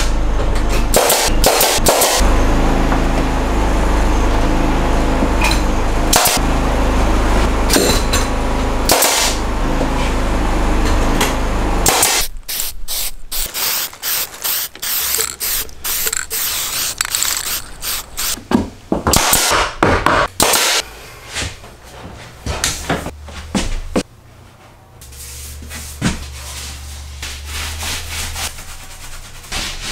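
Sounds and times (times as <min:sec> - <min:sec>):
paint sprayer hissing: 0:12.2 - 0:18.4.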